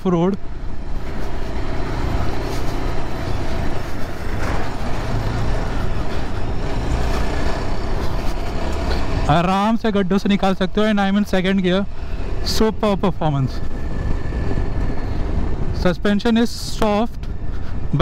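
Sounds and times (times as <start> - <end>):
motorcycle engine rumble: 0.0 - 10.4.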